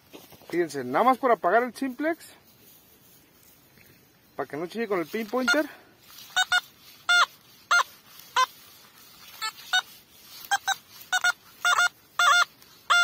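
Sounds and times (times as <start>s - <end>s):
metal detector beeping: 4.8s - 8.6s, 9.2s - 13.0s.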